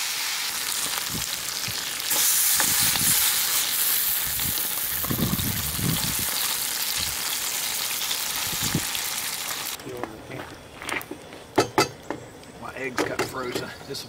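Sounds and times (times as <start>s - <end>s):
ham sizzling in a frying pan: 0.0s - 9.8s.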